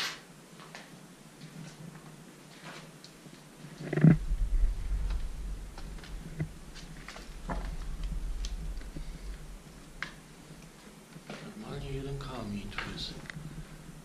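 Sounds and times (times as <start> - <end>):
low rumble: 4.1 - 10.7.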